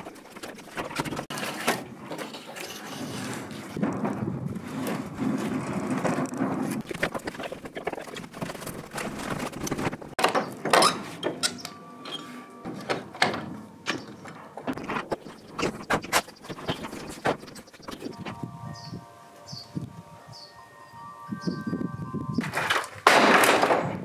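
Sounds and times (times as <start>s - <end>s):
wooden battens knocking: 0.0s - 11.7s, 12.7s - 18.4s.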